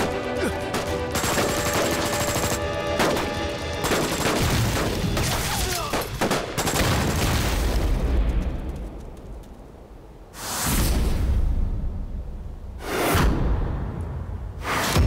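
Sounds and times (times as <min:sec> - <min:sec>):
film score: 0:00.0 - 0:15.0
rifles firing rapidly: 0:00.7 - 0:07.2.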